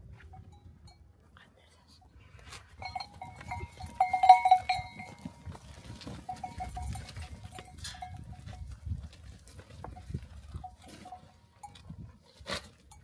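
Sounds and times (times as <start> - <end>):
animal bell ringing: 2.8 - 8.8, 9.9 - 12.2.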